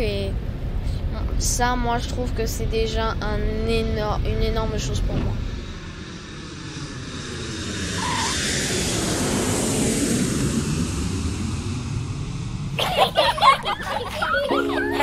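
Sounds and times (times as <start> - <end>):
people laughing: 12.8 - 15.0
music: 14.5 - 15.0.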